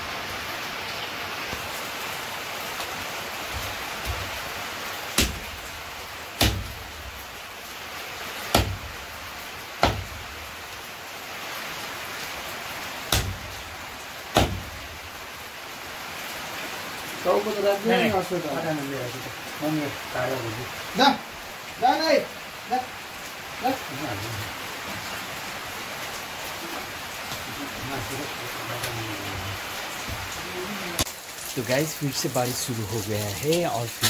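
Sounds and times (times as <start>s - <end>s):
heavy rain hissing: 0.0s - 34.0s
cleaver chopping meat: 5.2s - 5.6s, 6.4s - 6.8s, 8.6s - 8.9s, 9.8s - 10.2s, 13.1s - 13.5s, 14.4s - 14.7s.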